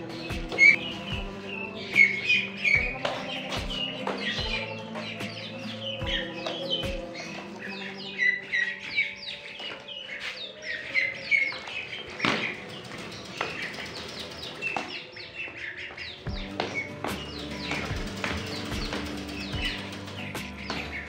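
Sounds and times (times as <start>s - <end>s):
chicks peeping: 0.0s - 21.0s.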